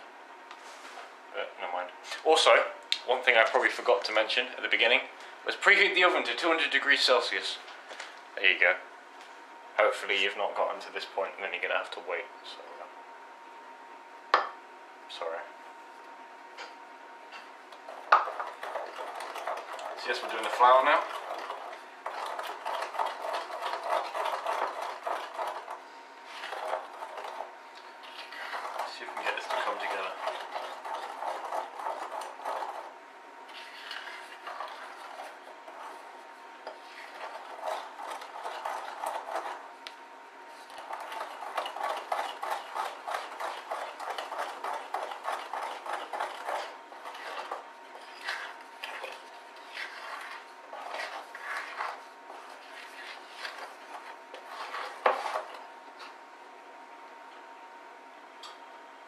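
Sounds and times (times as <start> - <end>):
spoon stirring in glass bowl: 17.8 - 32.9, 33.5 - 39.6, 40.5 - 56.2.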